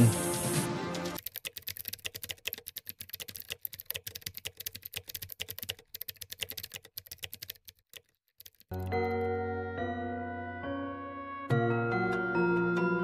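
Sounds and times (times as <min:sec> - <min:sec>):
rapid key clicking: 0:01.2 - 0:09.2.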